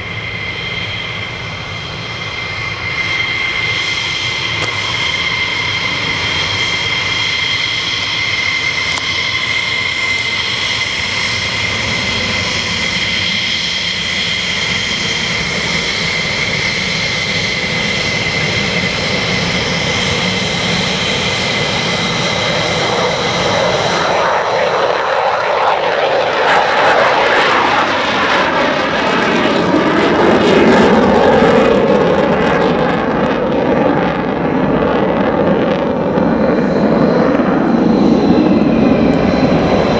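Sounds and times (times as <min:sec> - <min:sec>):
jet engine crackling roar: 0:00.0 - 0:39.9
jet engines whining: 0:00.0 - 0:39.9.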